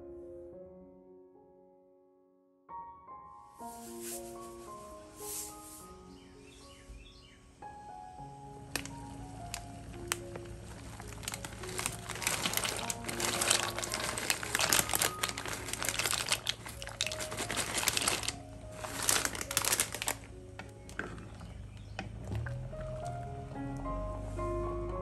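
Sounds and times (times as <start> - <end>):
plastic bag crinkling: 3.6 - 5.9, 8.6 - 21.2
dry pasta rattling into a pot: 10.8 - 20.2.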